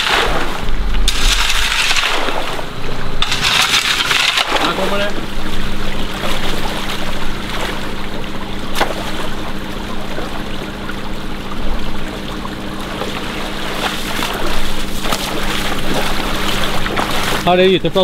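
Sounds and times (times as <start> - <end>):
stream running over gravel: 0.0 - 8.1, 12.8 - 18.0
person splashing through water: 0.0 - 10.7, 12.8 - 17.5
steady low hum: 0.0 - 18.0.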